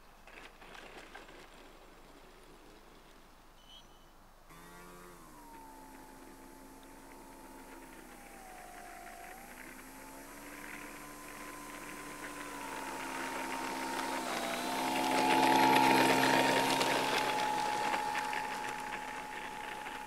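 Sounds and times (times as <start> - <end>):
electric motor and propeller whining: 4.5 - 20.0.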